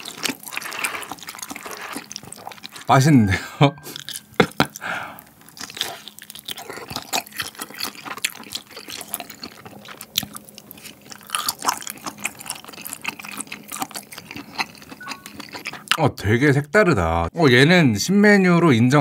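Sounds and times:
wet sticky chewing: 0.0s - 2.9s, 3.8s - 16.0s.

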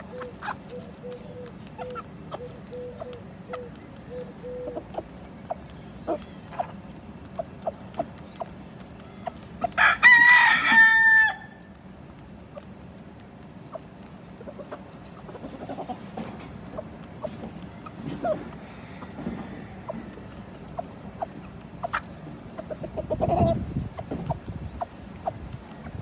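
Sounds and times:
chickens clucking: 0.0s - 26.0s
rooster crowing: 9.8s - 11.7s, 18.6s - 20.1s.

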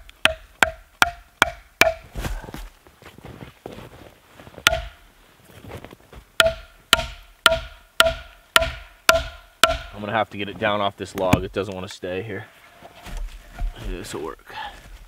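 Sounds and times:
axe knocking wooden wedge: 0.0s - 2.1s, 4.6s - 5.0s, 6.4s - 10.0s.

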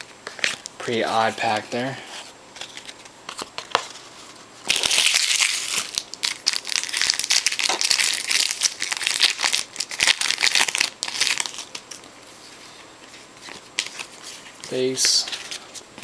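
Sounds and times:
foil wrapper crinkling: 4.6s - 12.0s.

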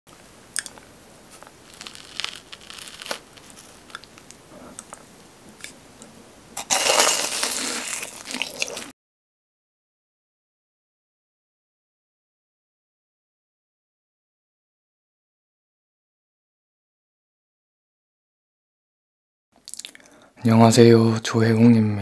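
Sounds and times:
faint crackles and clicks: 0.1s - 8.9s
crisp crunching bite: 0.6s - 5.0s, 6.6s - 8.9s.

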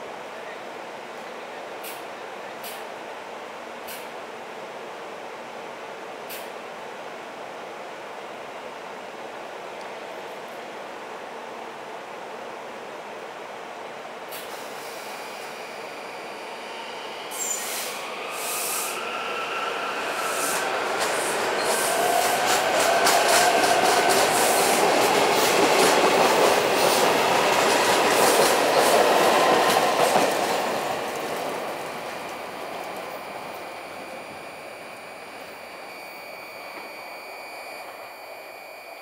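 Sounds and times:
train wheels clicking over rails: 20.1s - 34.1s.

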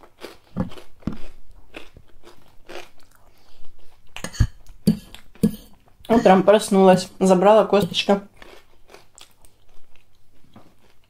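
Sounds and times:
person chewing food: 0.0s - 11.0s
fork knocking against plate: 4.2s - 5.7s.

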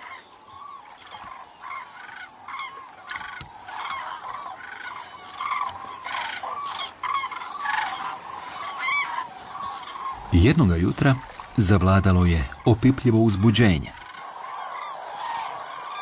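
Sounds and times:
cranes trumpeting calls: 0.0s - 16.0s.

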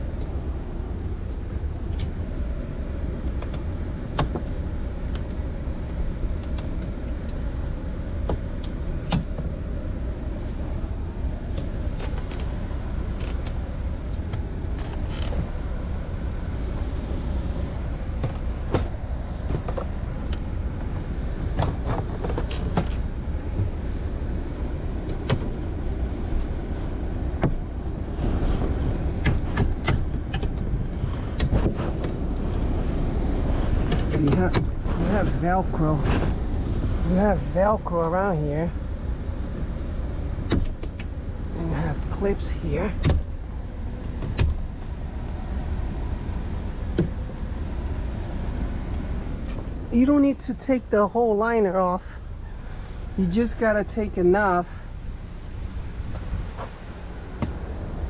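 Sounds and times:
steady low rumble: 0.0s - 58.0s.

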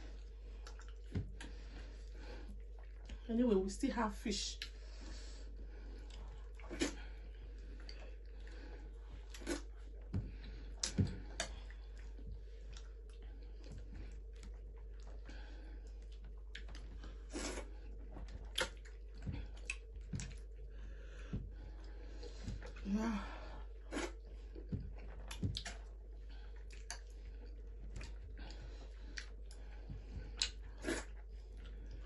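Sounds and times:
steady low hum: 0.0s - 32.0s
wet chewing smacks: 0.2s - 1.7s, 9.2s - 20.7s, 23.9s - 32.0s.

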